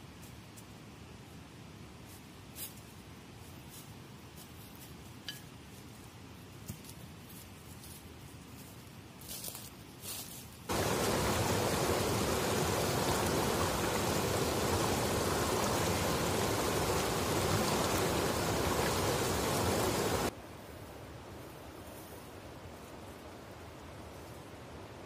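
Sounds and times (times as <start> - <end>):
stream rushing over boulders: 10.7 - 20.4.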